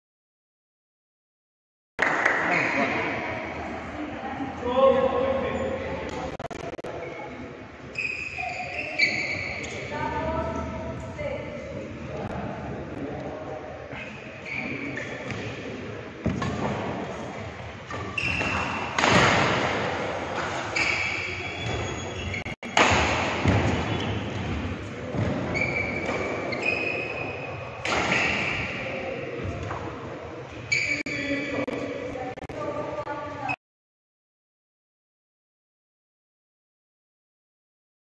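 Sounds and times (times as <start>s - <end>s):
shoe squeaks: 7.9s - 10.8s, 13.9s - 15.4s, 17.1s - 18.9s, 20.5s - 22.8s, 23.4s - 28.7s, 30.6s - 31.8s
racket hitting shuttlecock: 17.9s - 21.8s, 22.7s - 26.4s, 27.8s - 28.7s.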